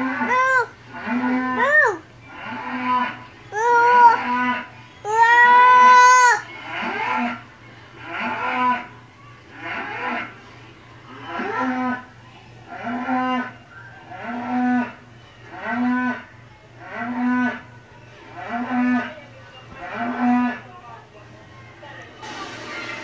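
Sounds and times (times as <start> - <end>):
toddler mooing: 0.0 - 2.0, 3.5 - 6.4.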